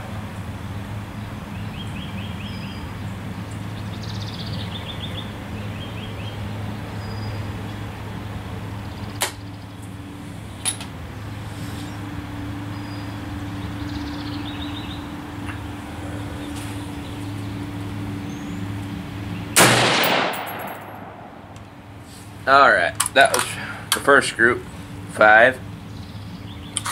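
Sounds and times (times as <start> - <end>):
steady low hum: 0.0 - 26.8
rifle shot: 19.6 - 21.6.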